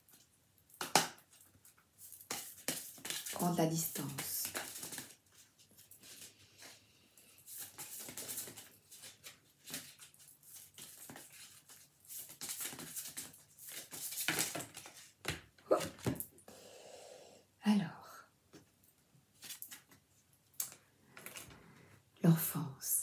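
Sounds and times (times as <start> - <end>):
cards being shuffled: 2.0 - 6.3, 7.5 - 16.2.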